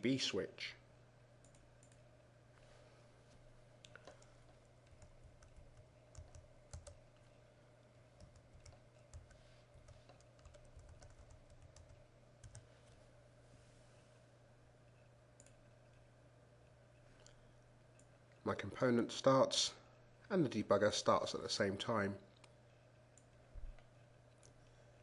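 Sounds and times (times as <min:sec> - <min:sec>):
steady low hum: 0:00.0 - 0:25.0
computer keyboard typing: 0:03.9 - 0:07.0, 0:08.2 - 0:13.0.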